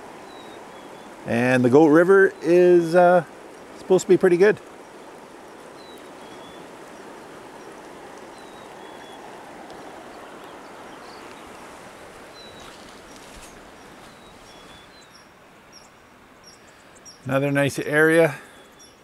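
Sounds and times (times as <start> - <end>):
river rushing over stones: 0.0 - 19.0
faint high bird chirps: 5.8 - 11.6.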